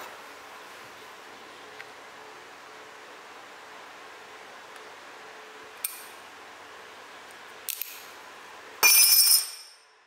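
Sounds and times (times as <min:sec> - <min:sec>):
metallic snaps of weld spots: 0:07.6 - 0:08.1
metal test piece clattering: 0:08.8 - 0:09.8.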